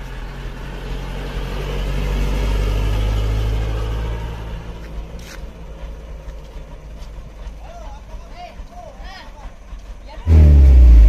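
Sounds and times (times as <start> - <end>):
truck engine driving past: 0.2 - 6.6, 10.3 - 11.0.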